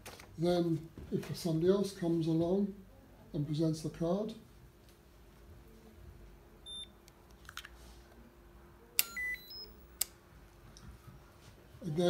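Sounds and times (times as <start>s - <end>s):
card reader beeping: 6.7s - 7.0s, 9.0s - 10.0s.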